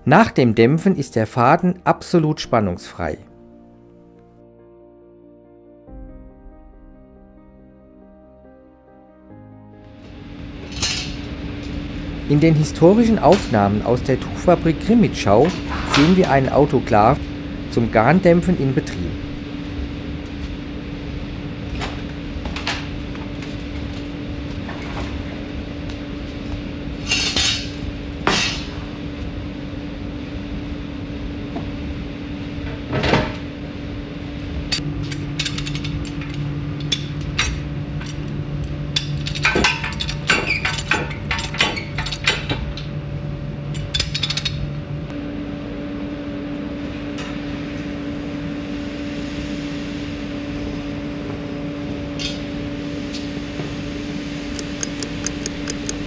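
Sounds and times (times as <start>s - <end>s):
steady hum: 5.9s - 56.0s
kitchen timer ticking: 54.6s - 56.0s.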